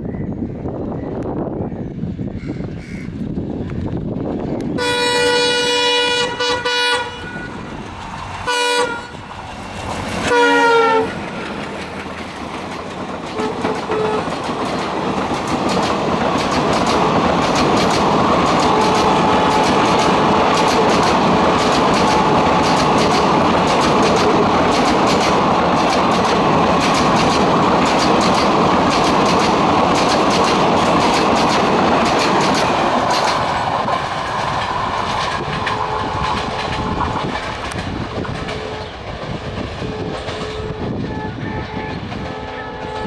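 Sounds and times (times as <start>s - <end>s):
train coaches rumbling: 0.0s - 43.0s
locomotive horn blasts: 4.8s - 7.7s, 8.5s - 9.2s, 10.3s - 11.3s, 13.4s - 14.3s, 35.7s - 36.5s, 39.8s - 43.0s
wheels clickety-clack over rail joints: 6.0s - 43.0s.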